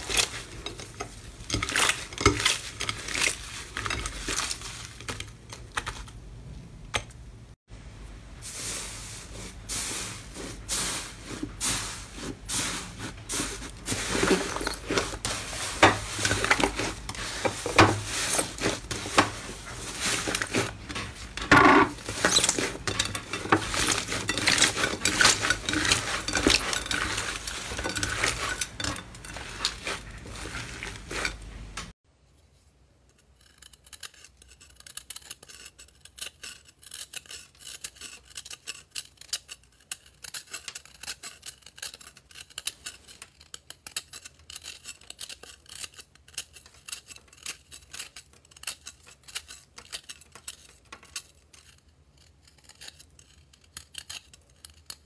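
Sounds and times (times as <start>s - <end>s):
crumbly ball crunching: 0.0s - 6.3s, 8.4s - 31.9s.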